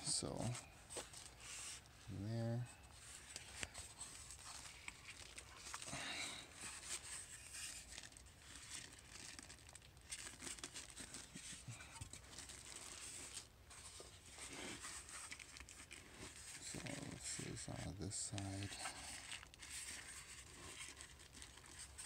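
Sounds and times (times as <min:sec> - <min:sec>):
plastic wrap crinkling: 0:02.9 - 0:22.0
foam packing rubbing: 0:06.4 - 0:22.0.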